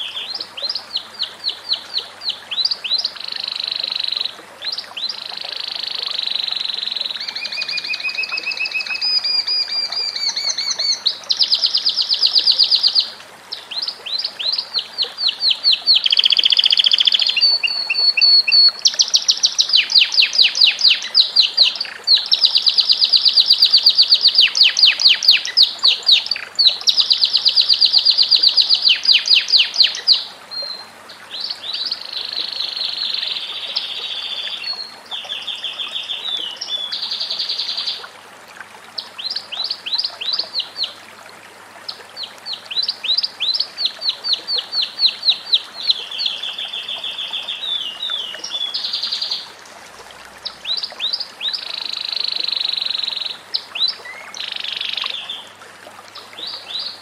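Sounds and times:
canary singing trills: 0:00.0 - 0:13.1, 0:13.7 - 0:30.8, 0:50.7 - 0:55.4.

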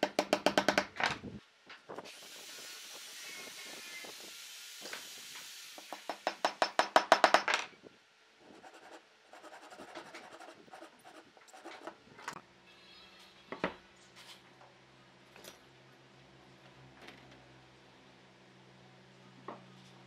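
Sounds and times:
hammer tapping on wood: 0:00.0 - 0:00.9, 0:05.9 - 0:07.5.

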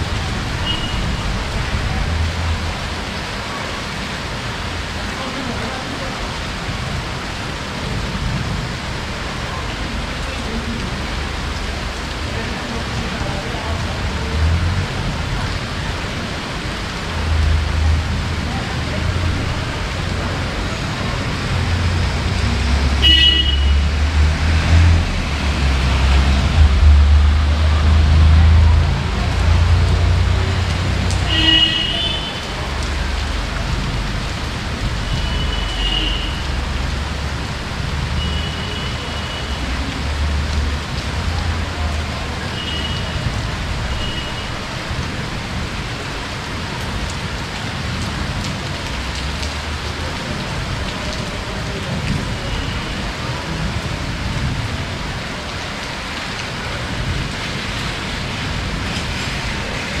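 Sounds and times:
heavy rain falling: 0:00.0 - 1:00.0.

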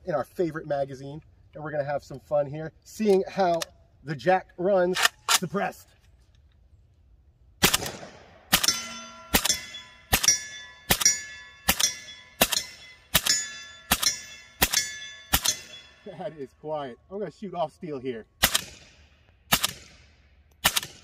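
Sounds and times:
suppressed rifle shots: 0:07.6 - 0:15.9, 0:18.4 - 0:21.0
steel target clanging: 0:08.5 - 0:16.4.

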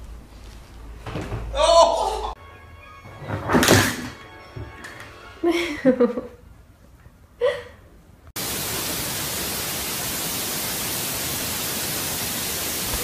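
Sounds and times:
loud steady hiss: 0:08.4 - 0:13.0.

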